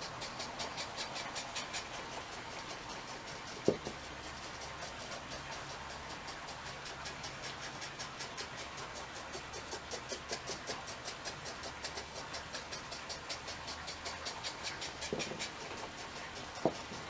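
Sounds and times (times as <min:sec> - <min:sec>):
steady hiss: 0:00.0 - 0:17.0
ultrasonic sensors ticking: 0:00.0 - 0:17.0.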